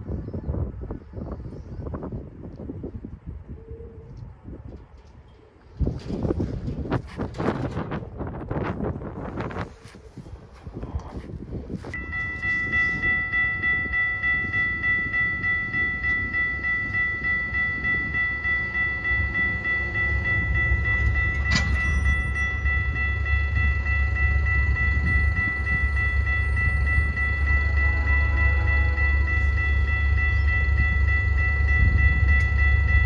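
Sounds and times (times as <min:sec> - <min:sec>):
approaching train rumble: 0:00.0 - 0:33.0
crossing signal bell ringing: 0:12.0 - 0:33.0.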